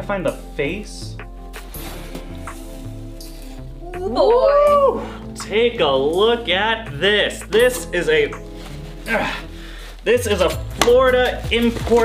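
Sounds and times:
background music with bass line: 0.0s - 12.0s
plastic bag rustling: 8.1s - 10.7s.

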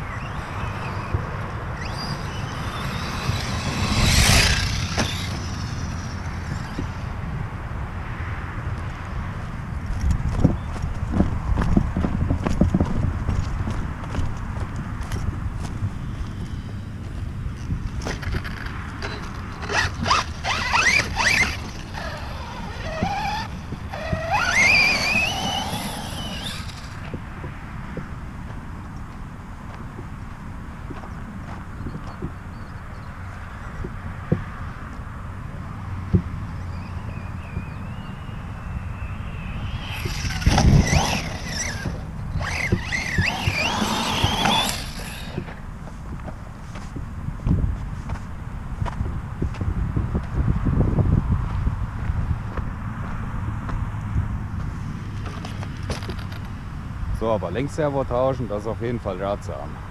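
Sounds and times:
electric motor whining: 0.0s - 7.2s, 19.6s - 27.1s, 37.4s - 45.6s
wind rumble on microphone: 0.0s - 59.9s.

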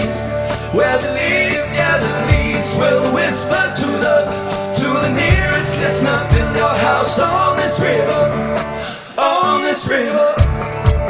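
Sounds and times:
deep bass notes: 0.0s - 8.8s
country song with acoustic guitar: 0.0s - 11.0s.

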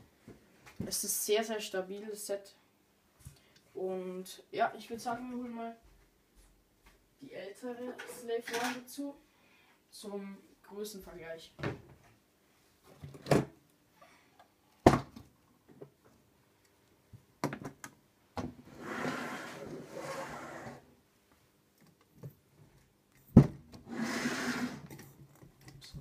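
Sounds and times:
plastic model scraping on shelf: 18.7s - 20.9s, 23.8s - 25.0s.

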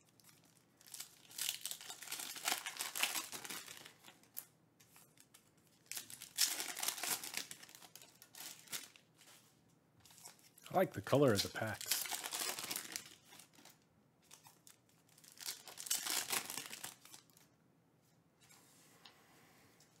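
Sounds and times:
foil wrapper tearing and crinkling: 0.0s - 9.2s, 11.7s - 17.4s.

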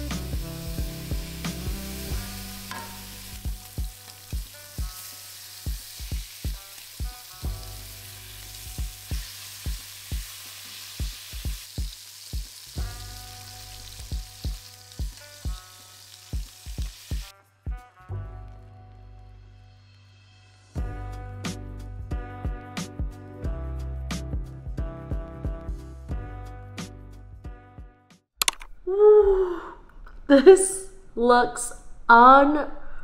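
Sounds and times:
background music with steady beat: 0.0s - 10.4s, 11.0s - 28.2s
pork sizzling in a pan: 0.0s - 17.3s.

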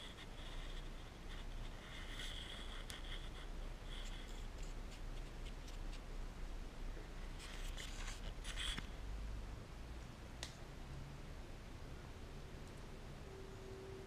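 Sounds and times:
fur scratching against microphone: 0.0s - 6.1s, 7.4s - 8.9s.

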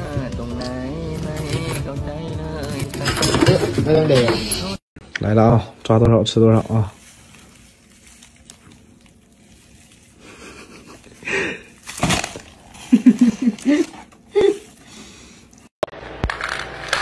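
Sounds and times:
person laughing breathily: 10.2s - 11.8s, 12.7s - 15.3s.

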